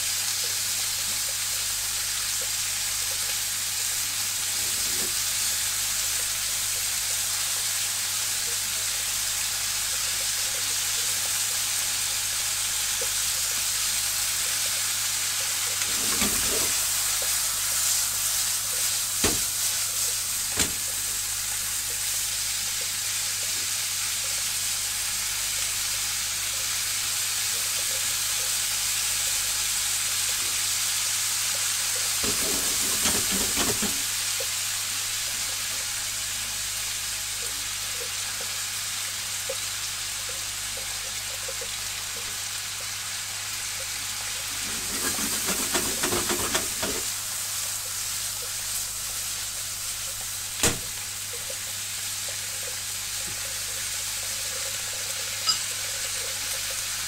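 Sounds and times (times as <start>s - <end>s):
food sizzling in a frying pan: 0.0s - 57.0s
chopsticks stirring food: 44.5s - 47.1s.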